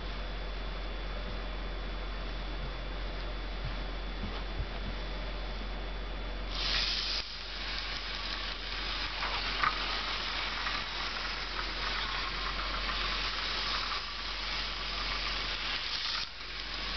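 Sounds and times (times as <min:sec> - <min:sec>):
model train motor whirring: 0:06.6 - 0:16.9.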